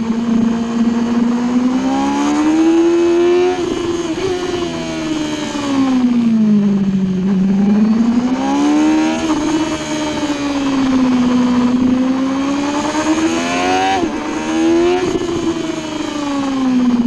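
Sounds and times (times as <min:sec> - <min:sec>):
motorcycle engine revving: 0:00.0 - 0:17.0
wind rush: 0:09.0 - 0:17.0.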